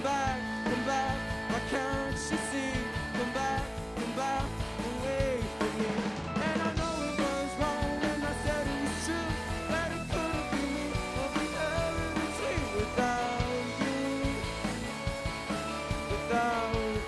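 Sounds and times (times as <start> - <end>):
drum kit: 0.0 - 17.0
electric bass: 0.0 - 17.0
electric guitar: 0.0 - 17.0
keyboard: 0.0 - 17.0.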